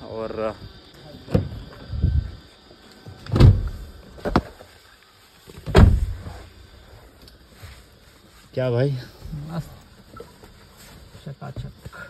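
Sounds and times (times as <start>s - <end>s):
car door thumps: 1.3s - 1.6s, 3.3s - 4.5s, 5.6s - 6.4s.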